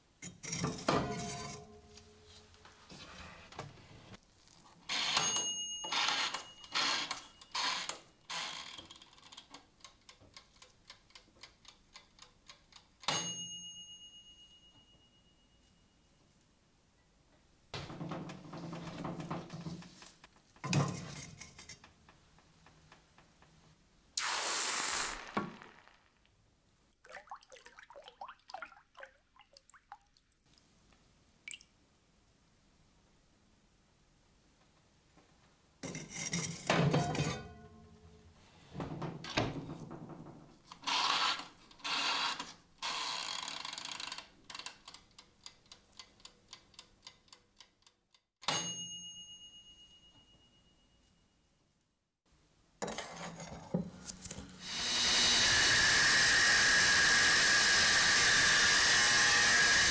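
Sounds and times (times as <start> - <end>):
ringing ding: 5.2 - 7.5, 13.1 - 16.1, 48.5 - 51.4
short loud hiss: 24.2 - 26.2.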